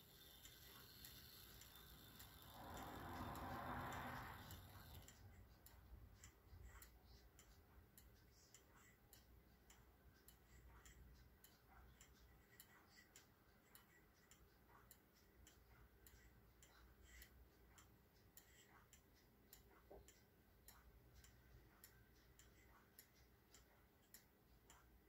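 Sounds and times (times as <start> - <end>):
pendulum clock ticking: 0.0 - 25.0.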